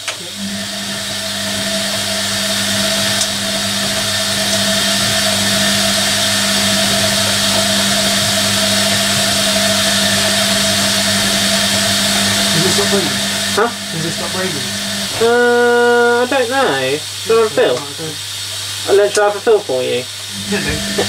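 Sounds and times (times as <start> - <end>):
washing machine hum: 0.0 - 21.0
water rushing in: 0.1 - 19.0.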